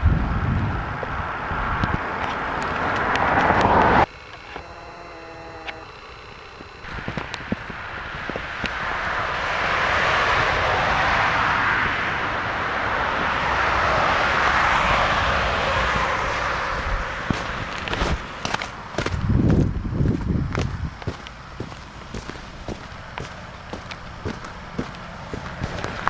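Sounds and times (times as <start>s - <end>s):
vehicle passing: 8.8s - 26.0s
footsteps in snow: 17.3s - 26.0s.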